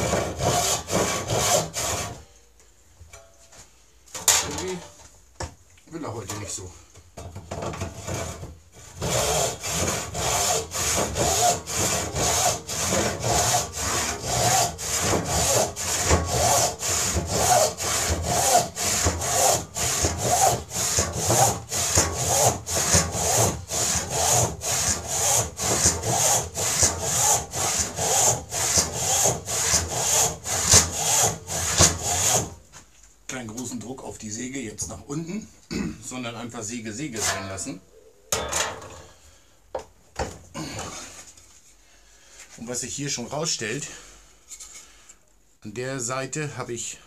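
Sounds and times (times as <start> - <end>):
hand saw cutting wood: 0.0 - 2.2, 7.6 - 32.6, 37.0 - 37.6.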